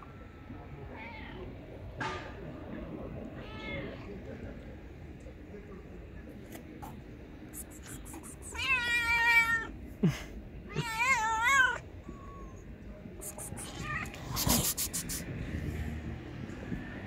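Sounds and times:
cat meowing loudly: 3.4s - 4.1s, 8.1s - 9.7s, 10.7s - 12.6s, 13.3s - 14.7s.

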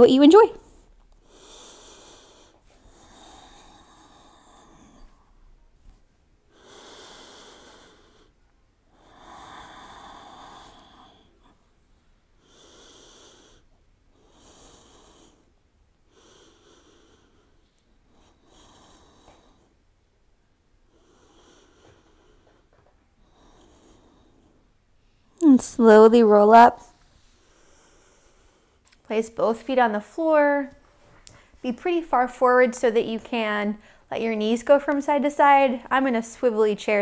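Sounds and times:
person breathing slowly: 0.6s - 5.7s, 6.5s - 19.9s, 20.8s - 25.4s, 26.9s - 28.9s.

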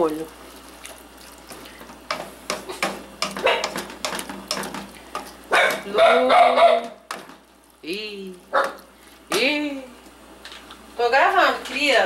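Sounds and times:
dog barking: 3.4s - 3.8s, 5.5s - 7.0s, 8.5s - 8.8s.

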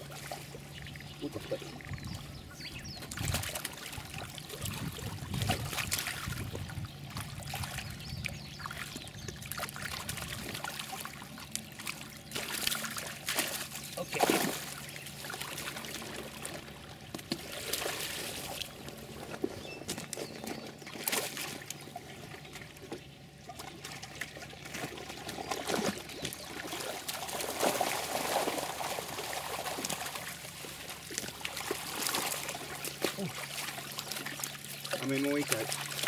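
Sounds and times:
pond water splashing: 0.0s - 36.0s.

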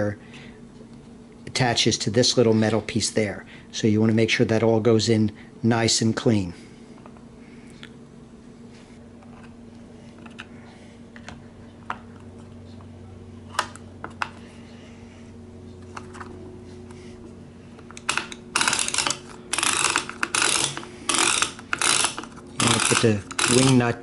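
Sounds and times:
knob ratcheting: 17.9s - 23.8s.

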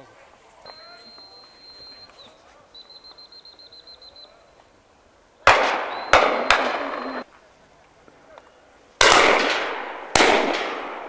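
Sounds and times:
high warbling whistle: 0.7s - 4.5s, 5.7s - 7.2s
shotgun shots: 5.4s - 7.2s, 9.0s - 11.0s.

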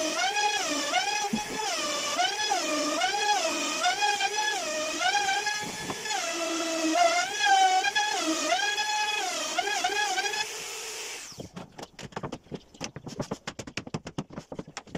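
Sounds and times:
electric router cutting wood: 0.0s - 11.5s.

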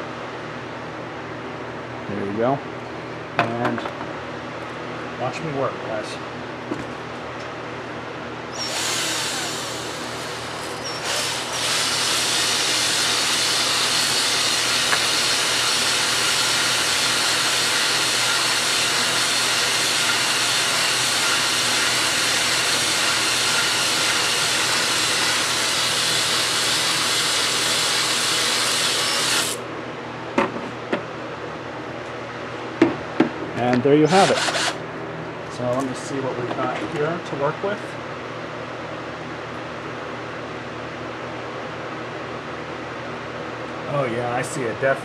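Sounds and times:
drill honing cylinder bore: 8.5s - 29.6s, 34.1s - 34.8s.

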